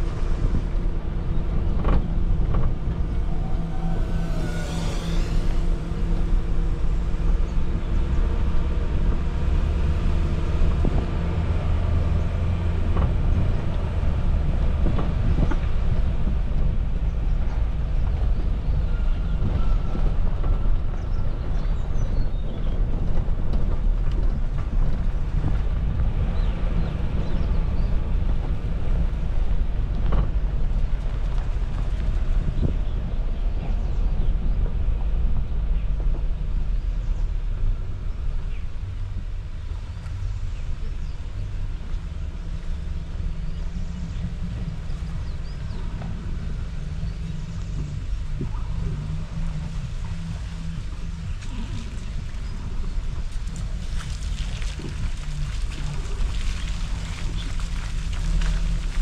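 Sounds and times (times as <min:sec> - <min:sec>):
engine and tyres rumbling: 0:00.0 - 0:59.0.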